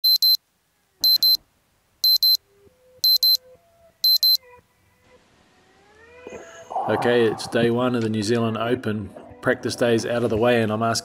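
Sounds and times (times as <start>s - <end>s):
alarm double beeps: 0.0s - 0.4s, 1.0s - 1.4s, 2.0s - 2.4s, 3.0s - 3.4s, 4.0s - 4.4s.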